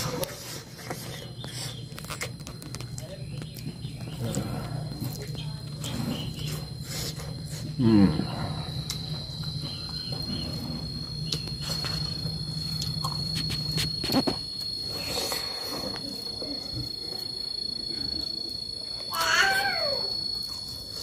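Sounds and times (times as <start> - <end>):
low hum: 0.0 - 19.0
high-pitched insect drone: 3.4 - 21.0
loud wavering pitched call: 19.1 - 20.2.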